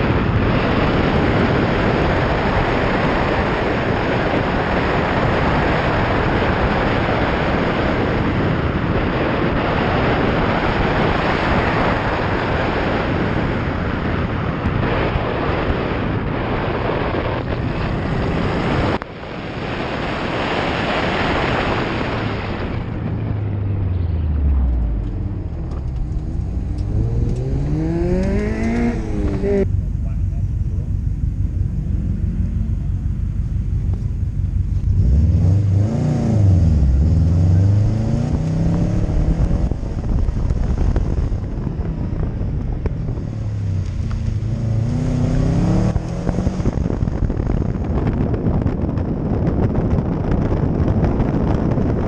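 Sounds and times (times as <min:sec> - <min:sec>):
road noise: 0:00.0 - 0:52.0
wind rush on microphone: 0:00.0 - 0:52.0
car engine revving: 0:21.2 - 0:48.3.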